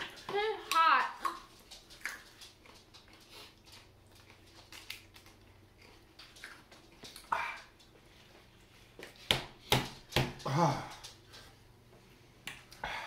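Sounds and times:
chewing and mouth noises: 0.0s - 9.3s.

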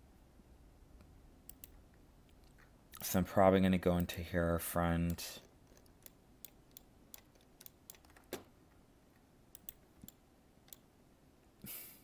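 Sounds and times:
faint room hiss: 0.0s - 12.0s
computer mouse clicks: 1.0s - 3.1s, 5.1s - 8.5s, 9.5s - 10.9s.

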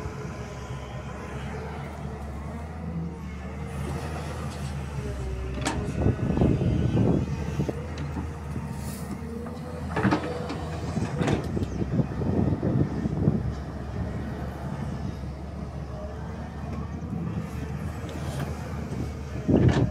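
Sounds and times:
excavator diesel engine running: 0.0s - 19.9s
excavator bucket clanking: 5.4s - 6.1s, 9.4s - 11.8s, 19.4s - 19.9s.

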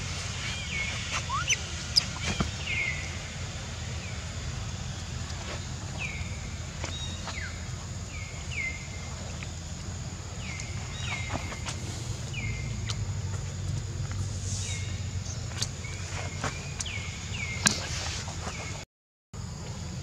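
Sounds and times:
steady low hum: 0.0s - 18.8s
high chirping animal calls: 0.5s - 3.3s.

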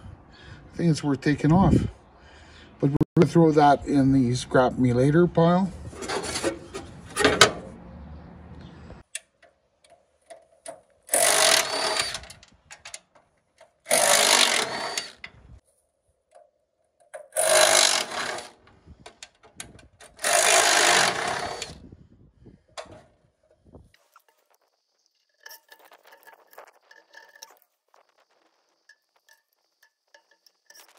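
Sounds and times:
impact driver backing out screws: 10.7s - 13.0s, 13.9s - 15.3s, 17.1s - 21.8s.

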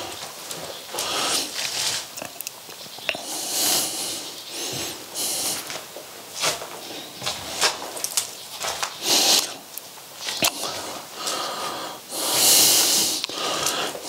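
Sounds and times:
footsteps crunching on rubble: 0.0s - 3.2s, 4.6s - 9.0s
close-up breathing: 0.9s - 1.8s, 3.1s - 5.8s, 10.4s - 14.0s.

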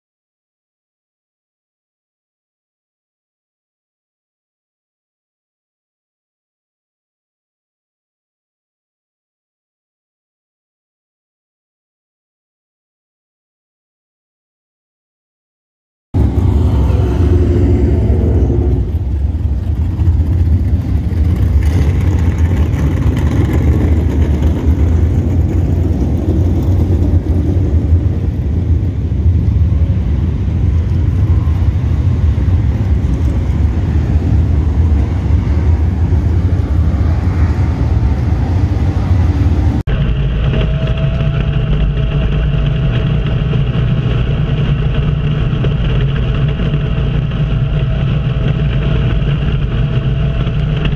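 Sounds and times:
engine whine from cockpit: 16.2s - 50.9s
loud race car engine rumbling: 16.2s - 50.9s.

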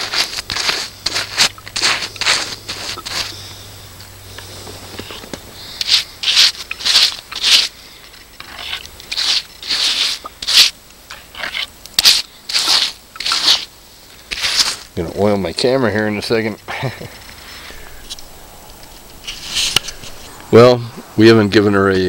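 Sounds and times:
brush scrubbing rough wood: 0.0s - 3.8s, 4.4s - 16.5s.

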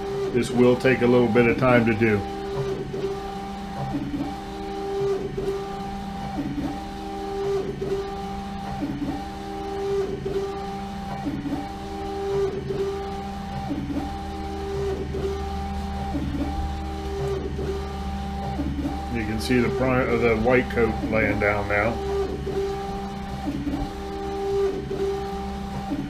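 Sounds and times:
printer carriage motor whining: 0.0s - 26.0s.

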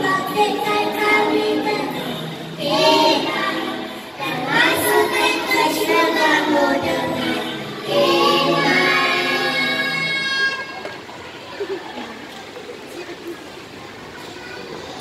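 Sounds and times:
young children singing: 0.0s - 11.1s.

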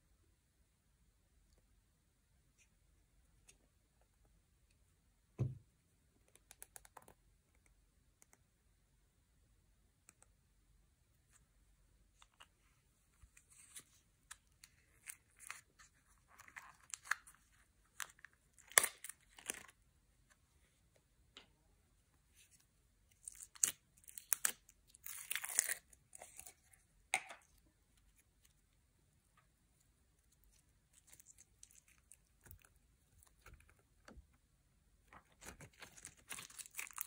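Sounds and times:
slime tearing and crackling: 23.3s - 26.5s, 35.4s - 37.0s.

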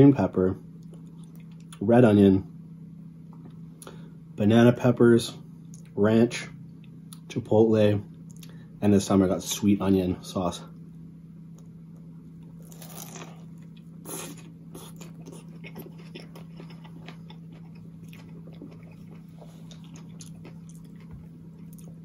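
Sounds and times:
steady low hum: 0.0s - 22.0s
man biting a sandwich: 12.6s - 21.0s.

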